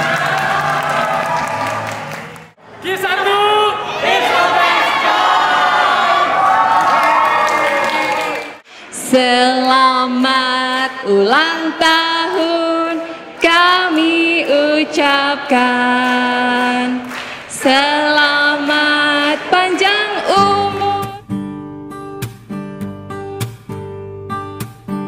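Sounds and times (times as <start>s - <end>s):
woman singing slow melody: 8.9s - 21.2s.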